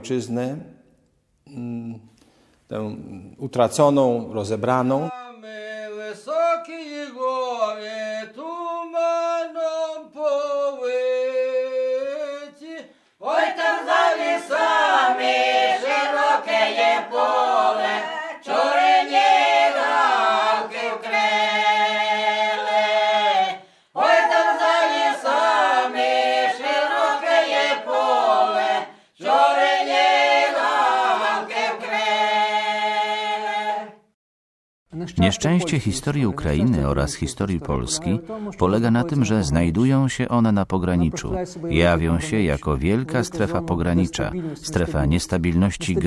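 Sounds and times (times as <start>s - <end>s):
a cappella choir singing: 5.3s - 34.2s.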